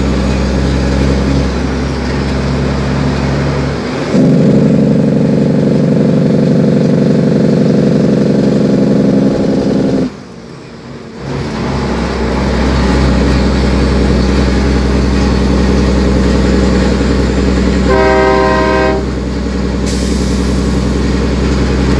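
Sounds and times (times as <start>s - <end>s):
diesel truck engine running: 0.0s - 21.9s
truck horn: 17.8s - 19.3s.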